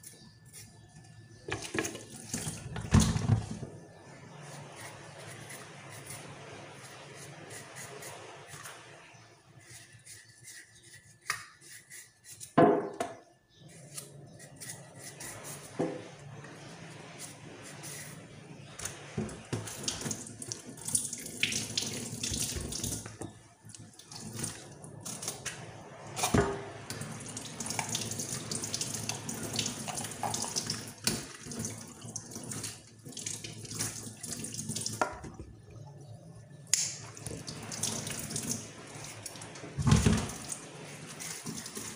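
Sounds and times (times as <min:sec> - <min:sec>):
carrot being peeled: 0:04.4 - 0:08.8, 0:09.6 - 0:12.6, 0:13.7 - 0:15.8
tap running into sink: 0:39.8 - 0:40.6.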